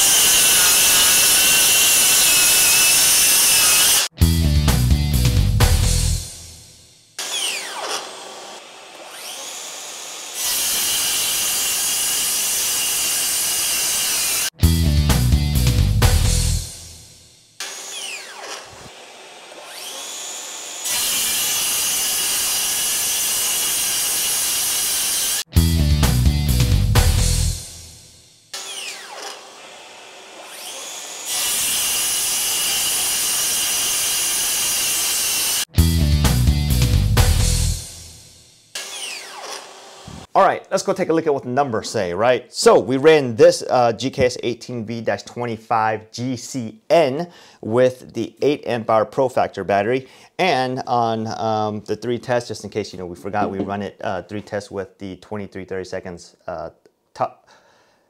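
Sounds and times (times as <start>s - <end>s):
circular saw cutting boards: 0.0s - 4.1s, 5.3s - 14.6s, 15.5s - 25.5s, 26.9s - 35.7s, 37.2s - 44.3s.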